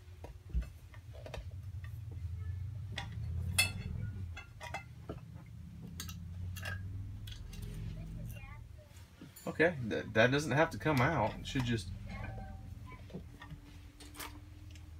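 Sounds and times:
low steady hum: 0.0s - 14.9s
light metal clinks: 1.8s - 8.6s.

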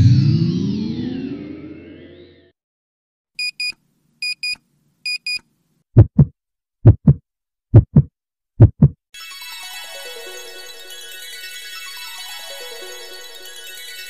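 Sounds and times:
double low thumps: 6.0s - 9.0s.

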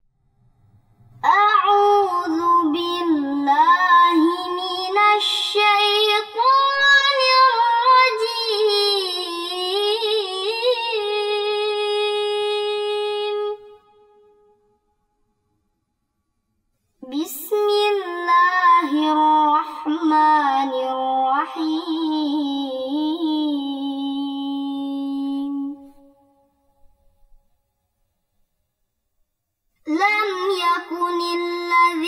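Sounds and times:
woman chanting: 1.2s - 13.8s, 17.0s - 26.2s, 29.9s - 32.0s.

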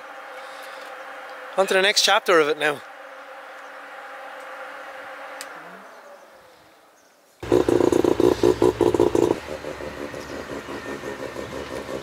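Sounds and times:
rotary engine running choppy: 7.4s - 12.0s.

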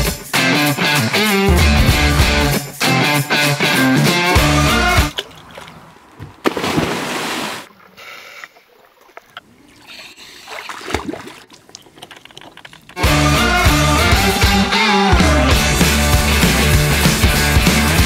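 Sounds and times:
water splashing and sloshing: 5.0s - 13.0s.

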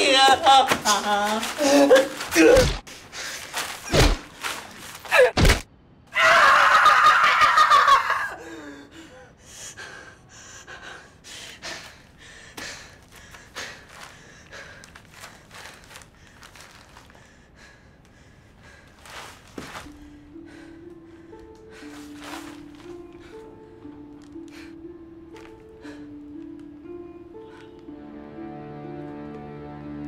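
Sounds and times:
woman screaming: 6.2s - 8.4s.

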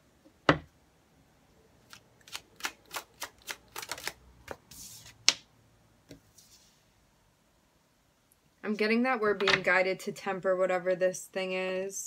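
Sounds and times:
cards shuffling clicks: 1.9s - 5.4s.

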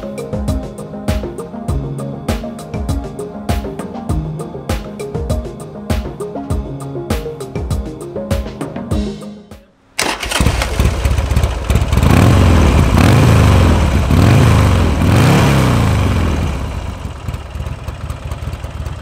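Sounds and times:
motorcycle engine idling and revving: 10.0s - 19.0s.

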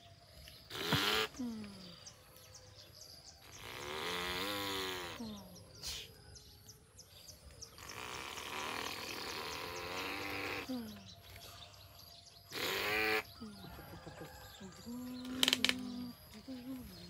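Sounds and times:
faint chirping: 0.0s - 17.0s.

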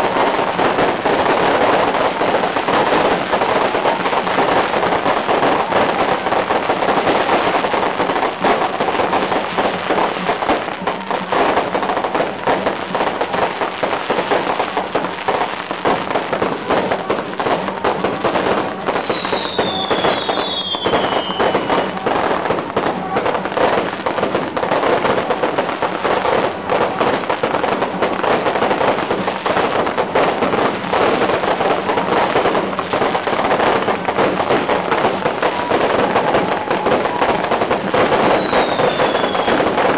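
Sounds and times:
firecrackers crackling: 0.0s - 39.9s
short falling whistles: 38.2s - 39.6s.

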